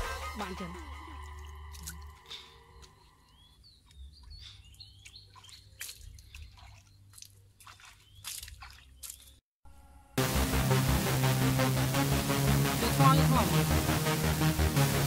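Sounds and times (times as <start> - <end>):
bird chirps: 0.2 - 9.4
water dripping: 0.6 - 9.4.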